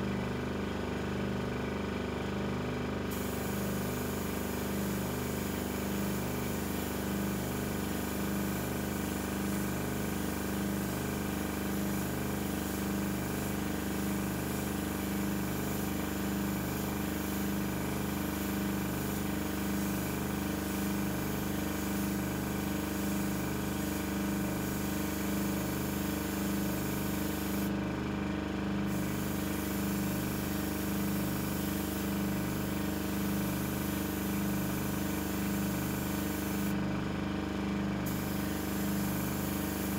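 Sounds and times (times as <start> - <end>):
air compressor pulsing hum: 1.8 - 39.9
paint sprayer hissing: 3.1 - 27.7, 28.9 - 36.8, 38.0 - 39.9.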